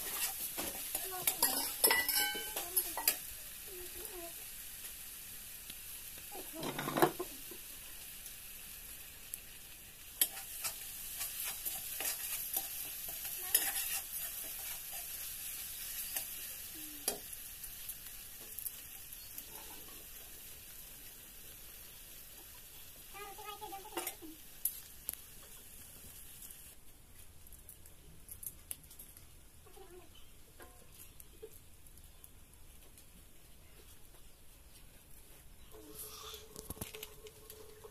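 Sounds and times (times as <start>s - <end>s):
metal spatula scraping a pan: 0.0s - 3.3s, 10.2s - 17.2s
onions sizzling in a pan: 0.0s - 37.9s.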